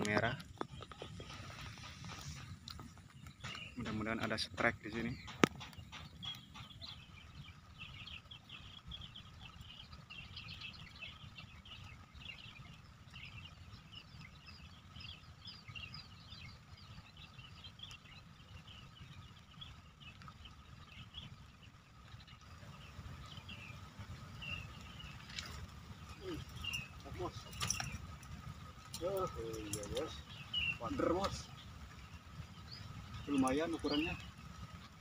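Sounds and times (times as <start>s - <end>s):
chorus of high chirping calls: 22.4s - 35.0s.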